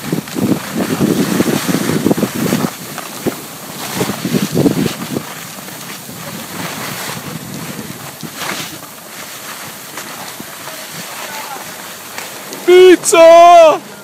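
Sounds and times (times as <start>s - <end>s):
wind buffeting microphone: 0.0s - 13.0s
skis sliding on packed snow: 0.0s - 14.0s.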